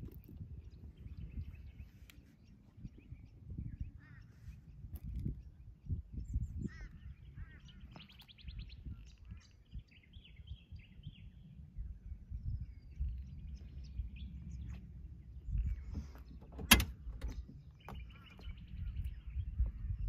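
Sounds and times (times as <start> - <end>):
small birds chirping: 0.0 - 20.0
low uneven rumble: 10.6 - 20.0.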